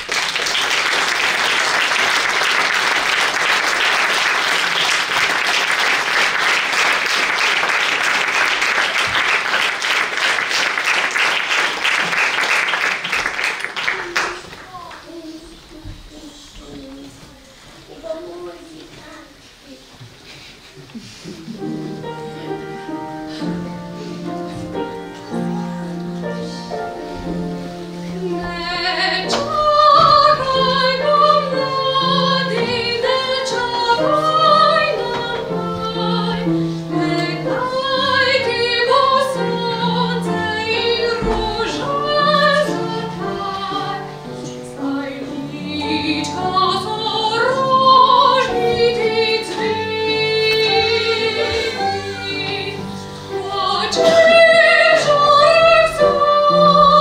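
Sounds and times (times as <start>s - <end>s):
upright piano: 0.0s - 16.7s, 20.7s - 57.0s
woman singing: 28.2s - 57.0s.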